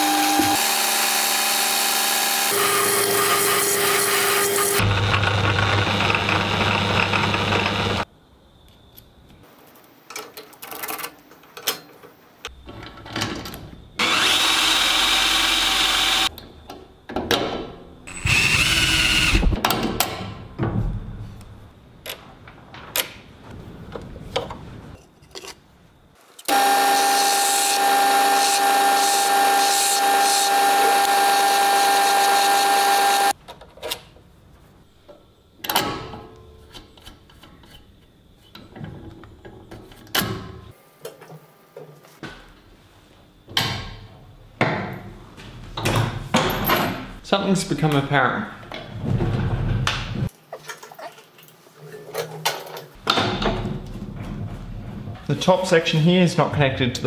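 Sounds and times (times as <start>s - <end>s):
power tool whining: 0.0s - 8.0s, 14.0s - 16.3s, 18.1s - 19.6s, 26.5s - 33.4s.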